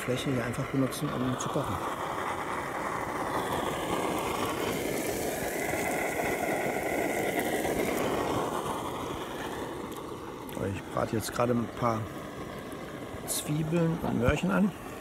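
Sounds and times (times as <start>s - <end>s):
gas stove roaring: 0.0s - 15.0s
vegetables frying in oil: 0.0s - 15.0s.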